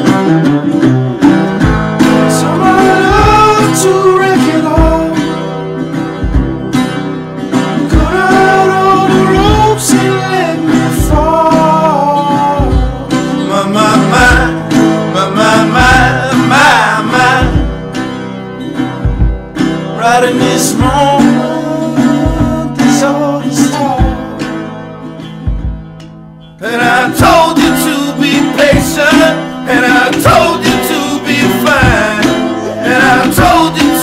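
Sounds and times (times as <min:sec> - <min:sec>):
guitar accompaniment: 0:00.0 - 0:34.0
person singing: 0:02.2 - 0:05.4, 0:07.8 - 0:17.8, 0:20.0 - 0:24.7, 0:26.6 - 0:34.0.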